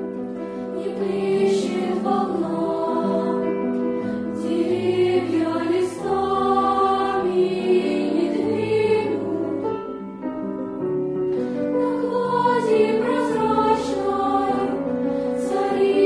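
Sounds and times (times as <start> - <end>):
piano accompaniment: 0.0 - 16.0
children's choir singing: 0.6 - 10.1, 11.7 - 16.0.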